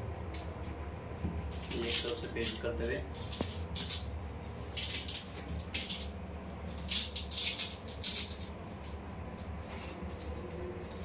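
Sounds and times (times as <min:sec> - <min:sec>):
low steady hum: 0:00.0 - 0:11.0
scratchy velcro rustles: 0:06.7 - 0:08.6.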